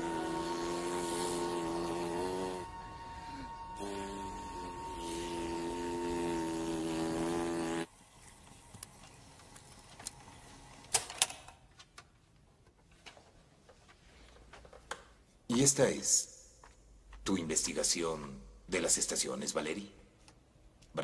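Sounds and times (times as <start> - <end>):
droning chord of steady tones: 0.0 - 7.4.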